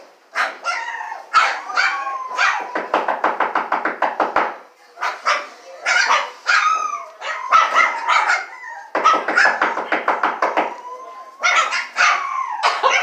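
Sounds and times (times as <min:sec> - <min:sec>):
puppies yipping and barking: 0:00.3 - 0:03.4, 0:05.0 - 0:13.0
puppy whining: 0:00.6 - 0:03.0, 0:05.4 - 0:13.0.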